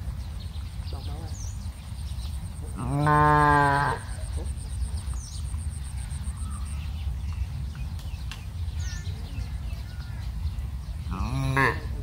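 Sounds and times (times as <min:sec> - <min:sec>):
cow mooing: 0:02.8 - 0:04.2, 0:11.1 - 0:12.0.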